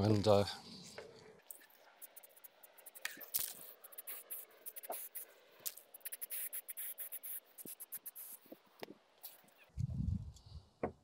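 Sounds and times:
spray can hissing: 0:01.6 - 0:08.6.

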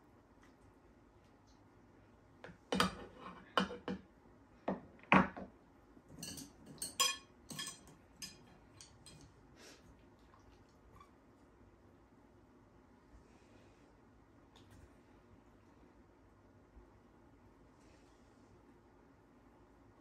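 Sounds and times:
spoon clinking on plate: 0:06.1 - 0:09.3.

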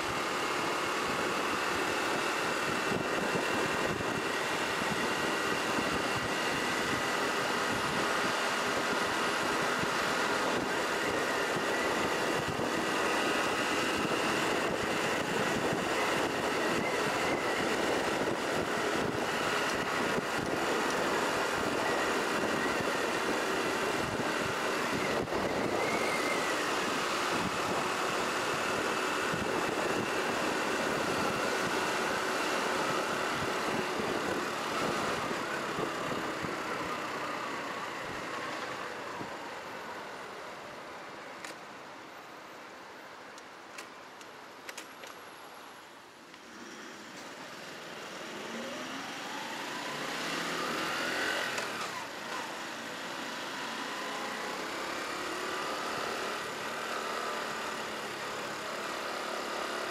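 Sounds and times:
vehicle engine running: 0:00.0 - 0:39.3
road and wind noise: 0:00.0 - 0:59.9.

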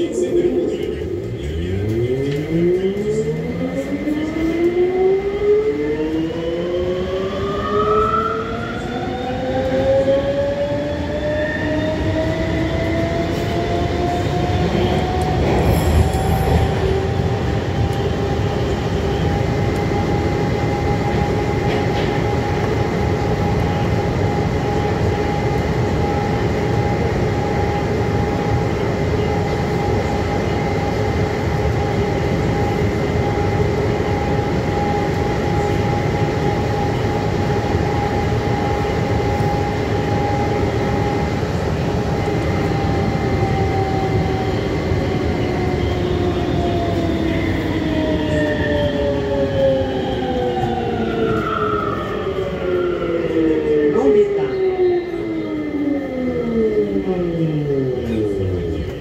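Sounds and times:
train traction motor whine: 0:00.0 - 0:59.0
train running gear rumble: 0:12.2 - 0:53.4.

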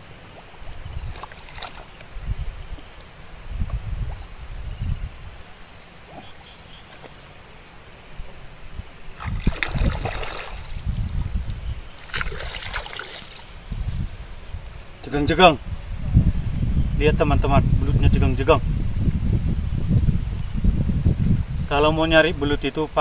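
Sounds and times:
muddy water sloshing and splashing: 0:00.4 - 0:02.1, 0:09.1 - 0:14.2.

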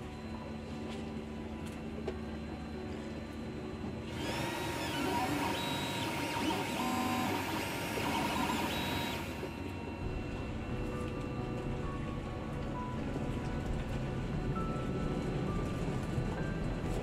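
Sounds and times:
stepper motors whining: 0:03.9 - 0:11.0.

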